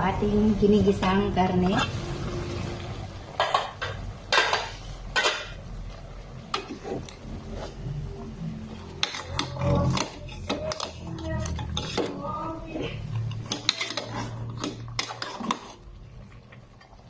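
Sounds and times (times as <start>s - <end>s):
metal spoon scraping a pot: 6.5s - 8.0s, 8.7s - 15.9s.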